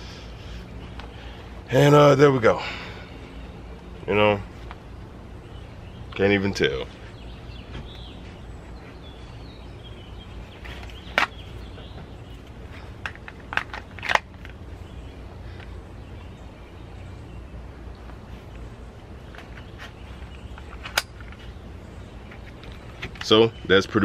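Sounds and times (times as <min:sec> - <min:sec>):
pistol clicking in holster: 0:13.0 - 0:14.6.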